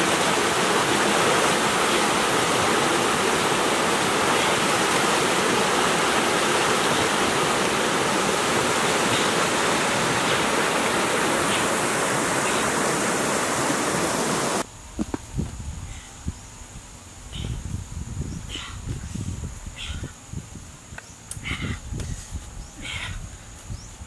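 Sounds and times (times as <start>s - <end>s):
waterfall rushing: 0.0s - 14.6s.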